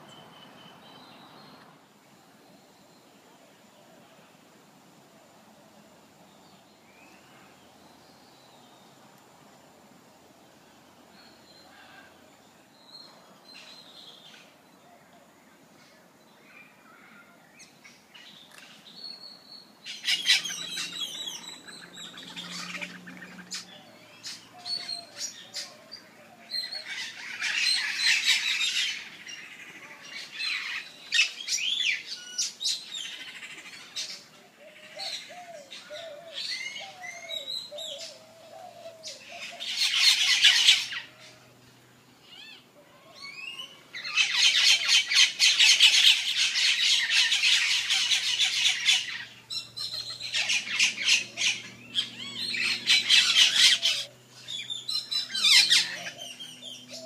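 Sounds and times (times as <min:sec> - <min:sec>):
birds squawking and chirping: 0:11.2 - 0:12.2, 0:16.4 - 0:57.0.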